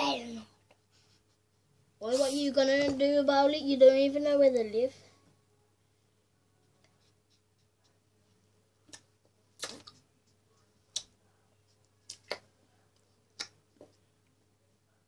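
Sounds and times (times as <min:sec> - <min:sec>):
faint sharp clicks and taps: 0:06.6 - 0:14.4.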